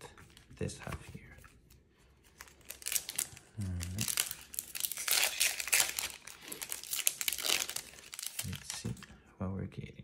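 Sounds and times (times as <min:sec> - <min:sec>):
foil wrapper crinkling and tearing: 0:02.4 - 0:09.0.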